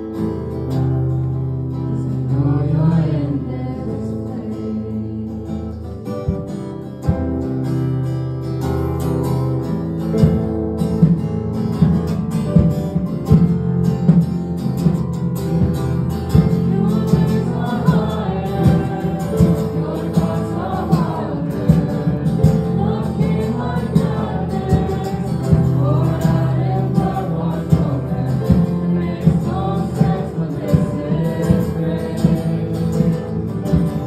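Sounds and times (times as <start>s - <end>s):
worship band playing: 0.0s - 34.0s
person singing: 1.8s - 6.0s, 16.4s - 33.5s
steady drum beat: 6.2s - 8.0s, 8.8s - 34.0s.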